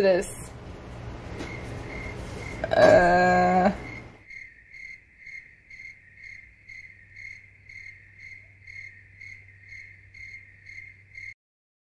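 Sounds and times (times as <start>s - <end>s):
cricket chirping: 1.3s - 11.4s.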